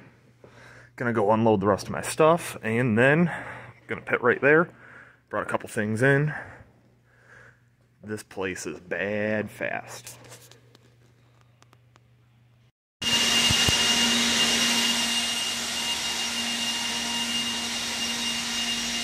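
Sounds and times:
rushing machine noise with whine: 13.0s - 19.0s.

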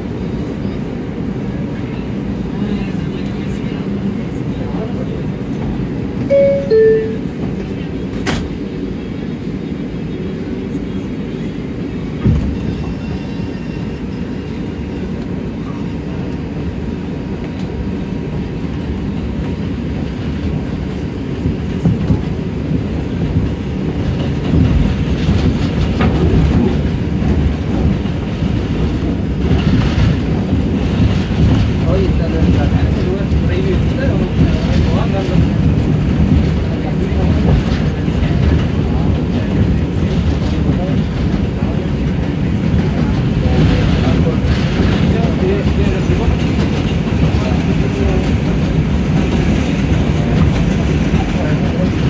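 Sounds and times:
train rumbling on track: 0.0s - 52.0s
two-note door chime: 6.3s - 7.4s
train wheel clatter: 12.0s - 52.0s.

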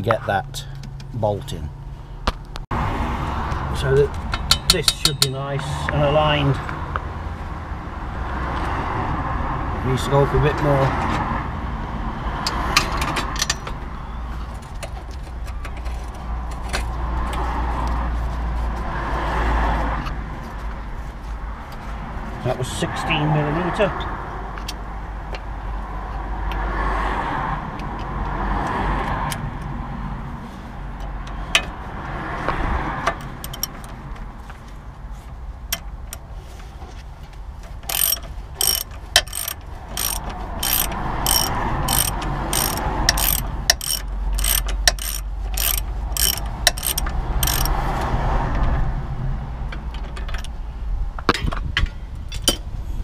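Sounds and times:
tool knocks and handling: 4.1s - 5.5s
socket ratchet clicking: 33.4s - 33.9s, 37.8s - 47.8s.

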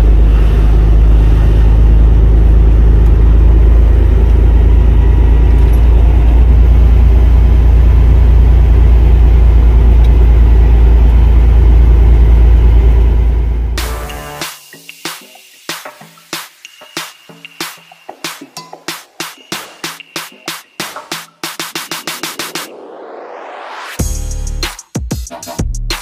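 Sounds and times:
diesel truck engine rumble: 0.0s - 14.4s
road noise: 0.0s - 14.5s.

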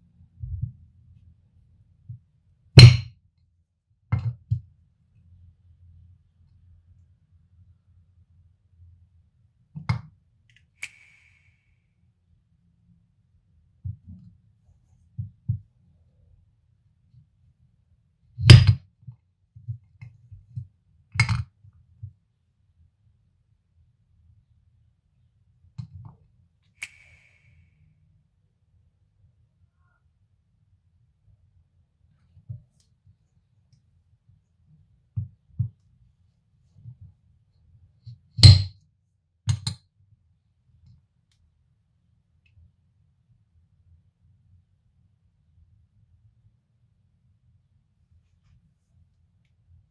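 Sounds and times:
knife knocking on plate: 2.8s - 3.1s
soft handling taps and knocks: 32.3s - 32.9s.

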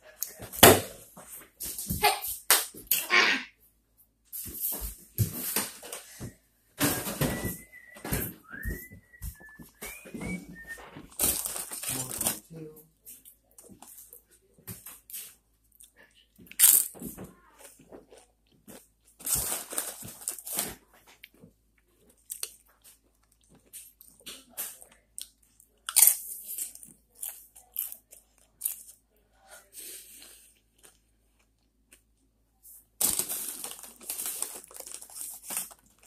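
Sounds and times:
chewing crunchy chips: 22.0s - 29.0s, 33.0s - 36.0s.

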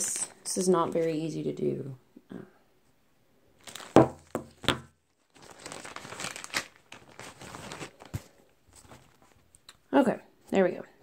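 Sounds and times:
plastic bag crinkling: 3.6s - 9.7s.

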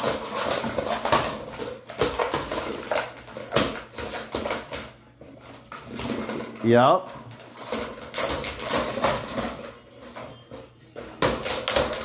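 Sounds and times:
plastic toy knocking on floor: 11.1s - 12.0s.

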